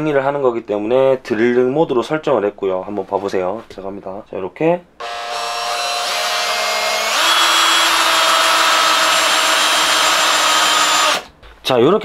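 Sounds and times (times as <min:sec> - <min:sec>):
drill boring into wood: 0:05.0 - 0:11.3.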